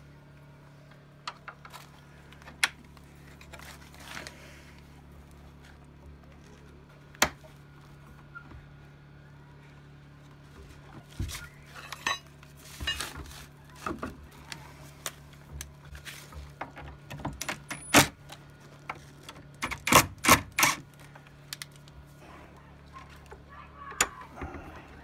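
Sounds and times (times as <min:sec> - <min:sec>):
impact driver bursts: 0:19.6 - 0:20.8.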